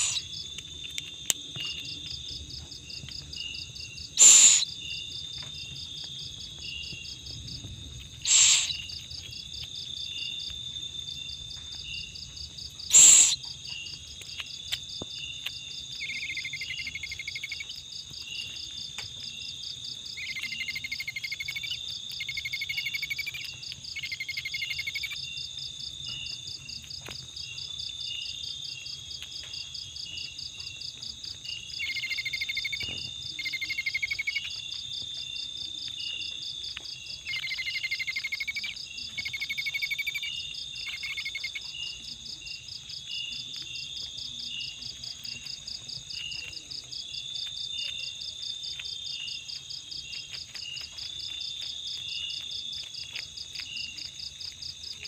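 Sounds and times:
crickets trilling: 0.0s - 55.0s
low insect buzzing call: 8.3s - 8.8s.

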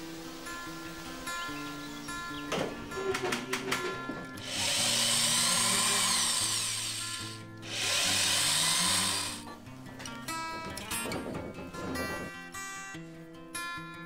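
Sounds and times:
acoustic guitar music: 0.0s - 14.0s
cordless drill driving screws: 4.4s - 9.4s.

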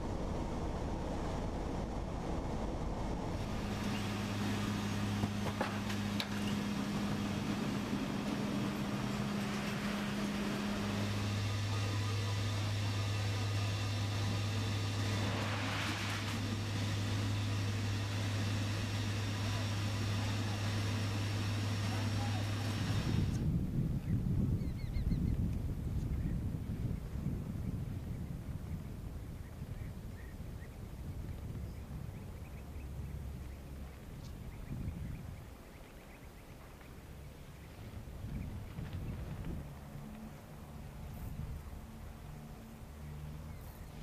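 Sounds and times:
rushing air: 0.0s - 24.5s
aircraft engines droning: 0.0s - 44.0s
low hum: 0.0s - 44.0s.

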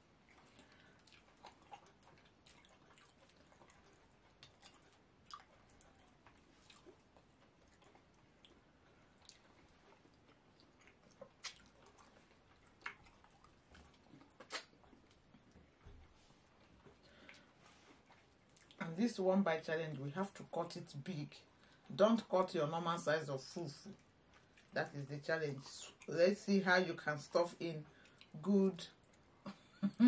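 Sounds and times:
mouths chewing: 0.0s - 20.4s, 21.5s - 29.8s
wet eating smacks: 0.1s - 18.9s, 23.8s - 26.2s, 27.8s - 29.8s.

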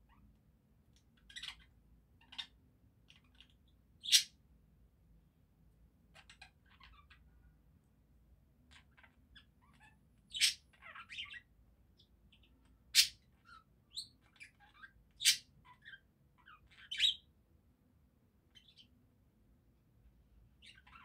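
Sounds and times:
budgerigars chattering: 1.2s - 4.4s, 8.8s - 11.5s, 12.3s - 17.2s.

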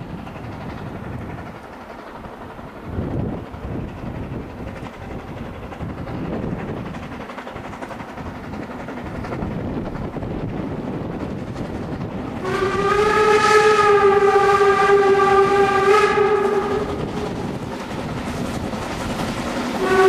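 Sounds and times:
steam locomotive running: 0.0s - 20.0s
steam whistle blast: 12.4s - 17.1s, 19.8s - 20.0s.

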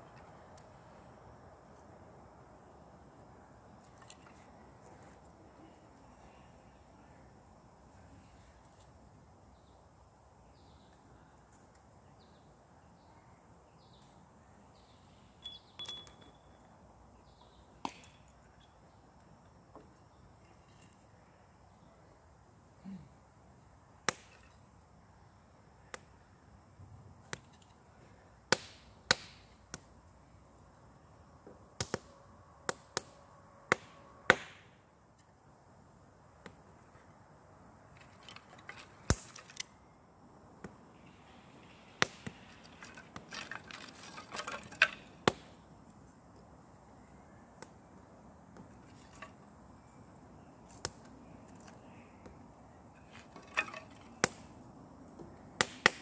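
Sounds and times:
wooden sticks clacking: 42.0s - 45.5s, 53.0s - 54.4s.

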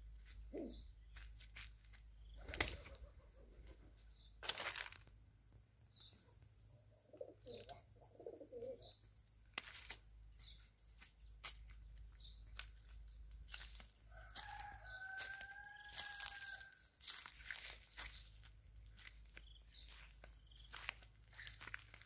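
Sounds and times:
rooster crowing: 14.0s - 17.4s.

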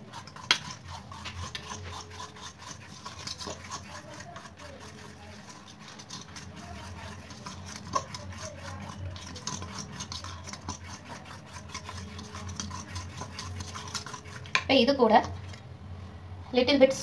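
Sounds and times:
spoon scraping metal bowl: 0.0s - 15.7s.

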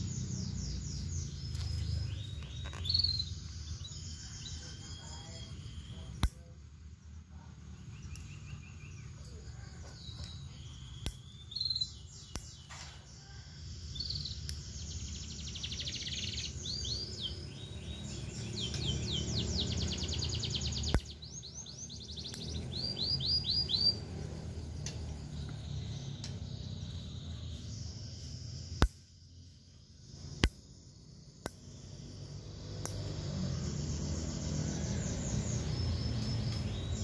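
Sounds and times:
songbird trilling: 0.0s - 6.6s, 7.7s - 12.9s, 13.8s - 28.9s, 32.6s - 37.0s
sharp clicks: 6.2s - 6.5s, 20.8s - 21.3s, 22.2s - 22.7s, 28.8s - 29.1s, 30.4s - 30.7s.

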